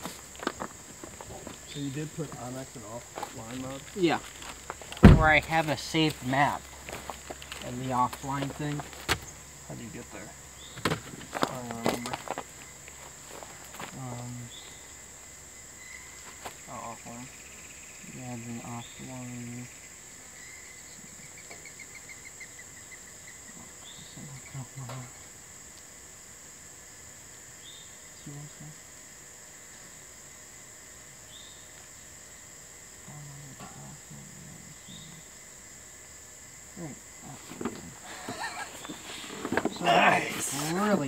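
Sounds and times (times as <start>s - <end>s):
insects droning: 0.0s - 41.0s
rustling and knocking: 3.8s - 5.7s, 10.7s - 12.5s, 37.4s - 40.8s.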